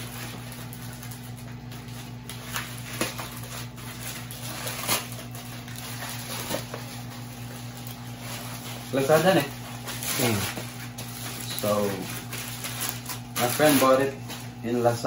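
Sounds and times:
plastic pouch ripping and rustling: 0.0s - 15.0s
steady low hum: 0.0s - 15.0s.

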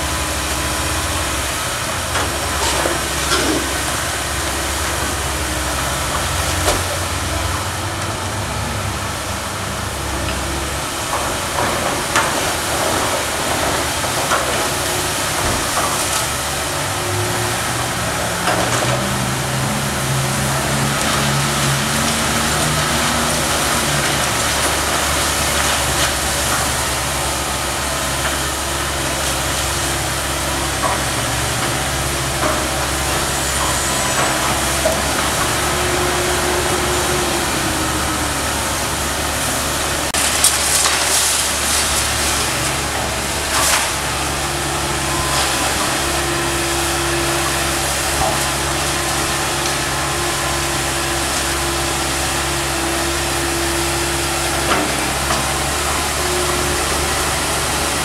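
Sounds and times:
excavator diesel engine running: 0.0s - 58.0s
high engine whine: 0.0s - 58.0s
wood splintering and crashing: 40.0s - 44.4s.

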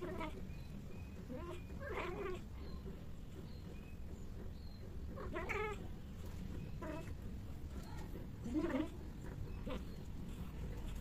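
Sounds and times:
cat caterwauling: 0.0s - 0.4s, 1.3s - 2.5s, 5.2s - 5.9s, 8.4s - 9.9s.

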